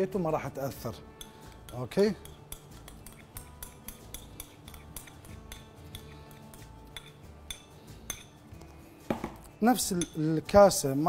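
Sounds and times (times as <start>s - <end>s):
faint background music: 0.0s - 11.0s
spoon clinking against can and bowl: 1.0s - 10.9s.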